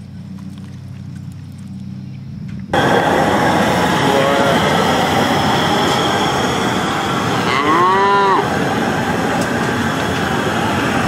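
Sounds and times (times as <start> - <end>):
steady rushing noise: 2.7 - 11.0
cow mooing: 7.4 - 8.5.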